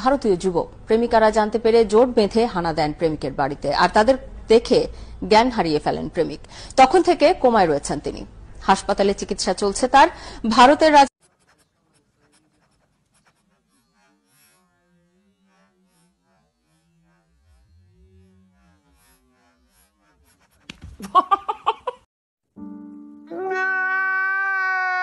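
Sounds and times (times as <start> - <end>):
man wailing: 23.3 - 25.0.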